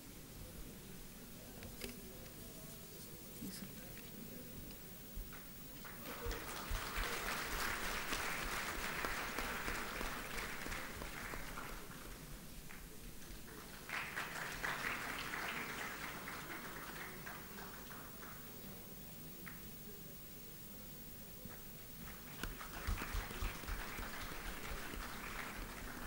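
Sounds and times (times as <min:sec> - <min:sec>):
audience applauding: 0:05.3 - 0:18.8, 0:22.0 - 0:26.0.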